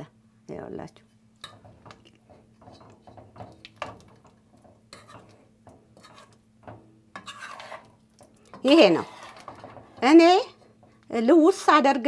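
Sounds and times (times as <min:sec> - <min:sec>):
metal spoon scraping a pot: 0:01.4 - 0:11.0.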